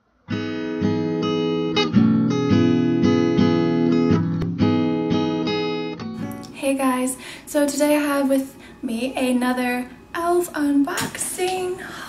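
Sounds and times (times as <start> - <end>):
strummed acoustic guitar: 0.2 - 6.5.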